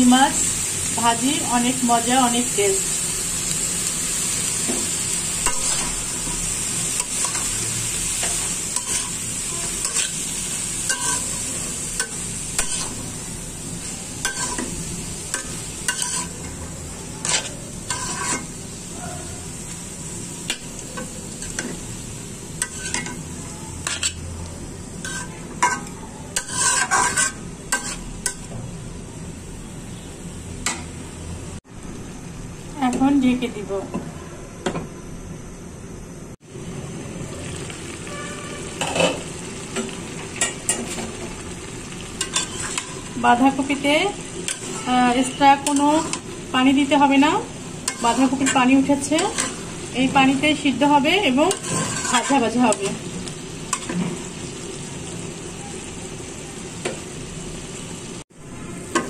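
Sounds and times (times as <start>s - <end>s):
frying hiss: 0.0s - 33.9s, 36.4s - 59.0s
spatula scraping a pan: 5.4s - 7.5s, 8.1s - 11.4s, 12.0s - 13.1s, 14.2s - 16.6s, 17.2s - 18.6s, 22.6s - 23.2s, 25.0s - 28.5s, 42.2s - 43.1s, 44.4s - 46.4s, 47.8s - 49.9s, 51.2s - 53.0s.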